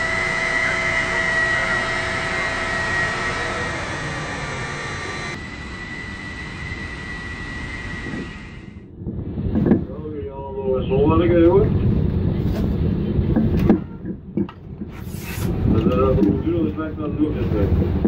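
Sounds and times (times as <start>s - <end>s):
crane hoist motors whining: 0.0s - 8.9s
mechanical hum: 0.0s - 18.0s.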